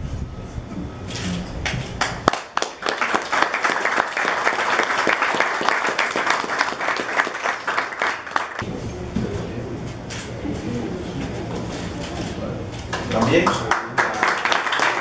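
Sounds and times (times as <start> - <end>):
people applauding: 2.0 - 8.6, 12.9 - 15.0.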